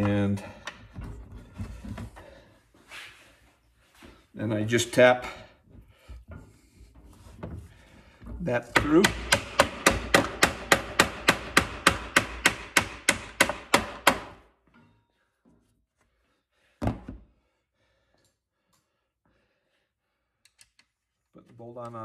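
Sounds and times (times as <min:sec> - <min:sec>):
mallet tapping bolt: 0:08.7 - 0:14.4.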